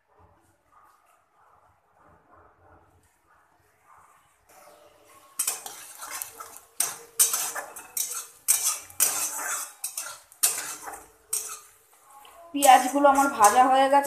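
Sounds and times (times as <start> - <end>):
metal spatula scraping wok: 4.6 - 14.0
onions frying in oil: 5.4 - 14.0.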